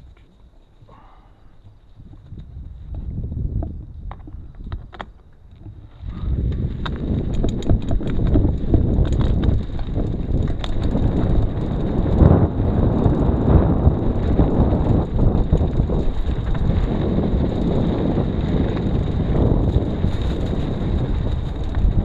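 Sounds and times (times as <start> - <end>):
wind buffeting microphone: 0.9 - 22.0
scattered rattles: 6.5 - 22.0.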